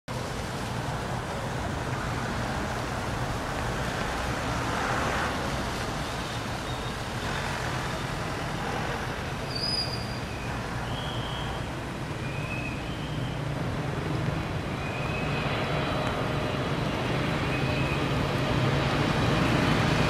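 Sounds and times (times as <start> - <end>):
road traffic: 0.1 - 20.0
vehicle passing: 0.2 - 9.4.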